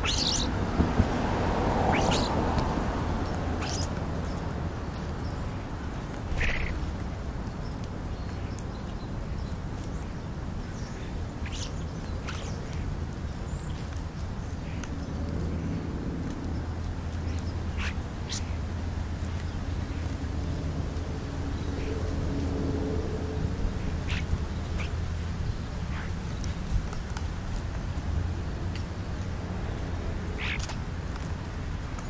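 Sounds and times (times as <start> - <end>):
starlings squealing and whistling: 0.0 - 0.6, 1.8 - 2.4, 3.6 - 4.4, 6.3 - 6.9, 10.8 - 12.8, 17.2 - 18.6, 23.8 - 25.0, 25.6 - 26.5, 30.4 - 30.8.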